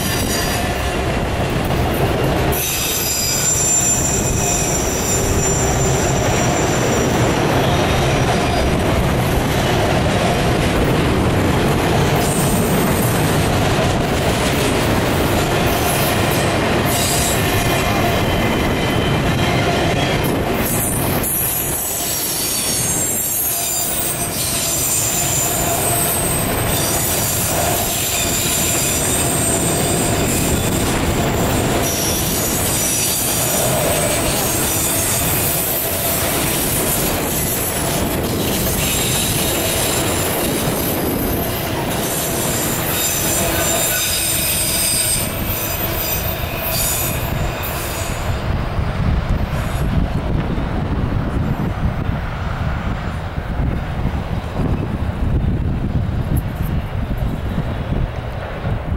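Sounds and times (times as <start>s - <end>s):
train wheels rumbling and rattling: 0.0s - 58.9s
high wheel squeal: 2.5s - 8.8s, 16.9s - 37.8s, 38.4s - 48.4s.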